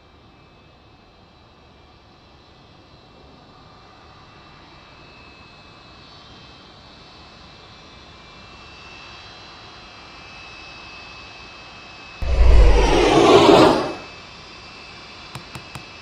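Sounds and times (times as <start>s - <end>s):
jet airliner rushing: 12.2s - 14.1s.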